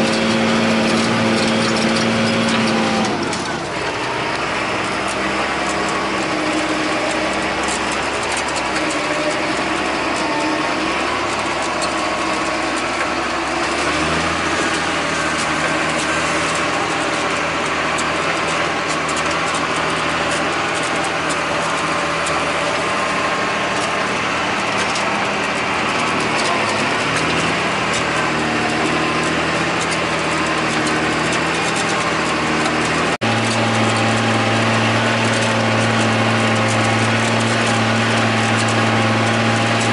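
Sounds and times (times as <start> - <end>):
rattle and clatter in cab: 0.0 - 39.9
tractor diesel engine under load: 0.0 - 39.9.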